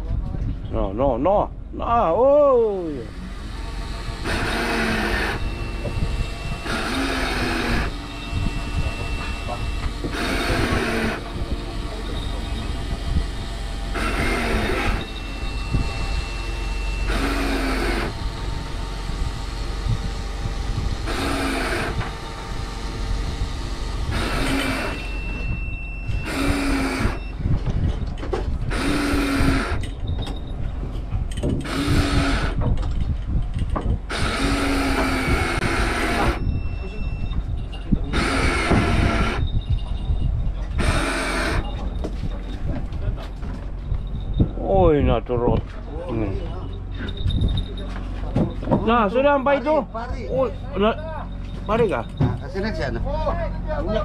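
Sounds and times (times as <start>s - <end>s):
steady low hum: 0.0s - 54.0s
fishing reel cranking: 26.2s - 27.2s.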